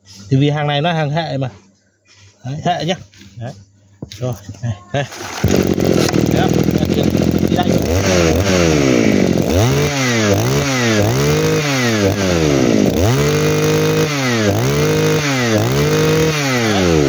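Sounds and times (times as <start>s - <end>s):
brush cutter engine revving: 5.1s - 17.0s.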